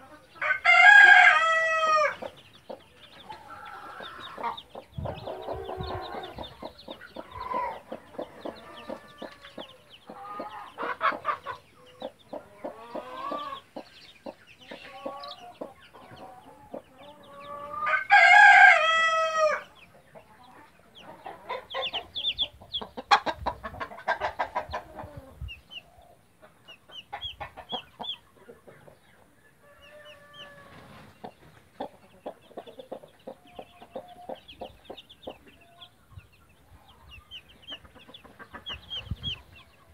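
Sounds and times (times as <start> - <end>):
chicks peeping: 0.0 - 39.9
hen clucking: 0.0 - 39.9
rooster crowing: 0.4 - 2.2, 17.7 - 19.7.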